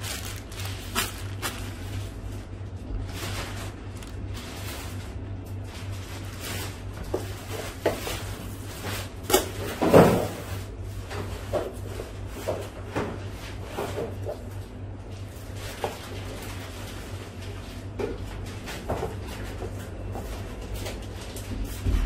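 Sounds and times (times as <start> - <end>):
low hum: 0.0 - 7.5
plastic bag crinkling: 0.0 - 9.2.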